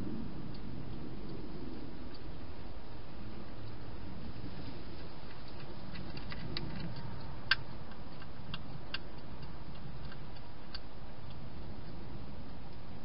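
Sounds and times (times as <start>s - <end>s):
low steady hum: 0.0s - 13.0s
hedgehog crunching dry food: 4.4s - 12.6s.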